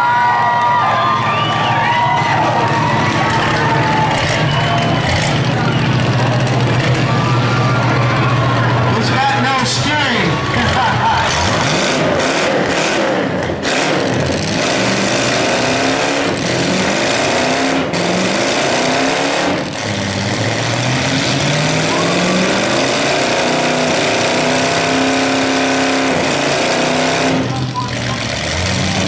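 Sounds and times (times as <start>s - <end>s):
wheels spinning in dirt: 0.0s - 8.9s
car engines revving hard: 0.0s - 29.0s.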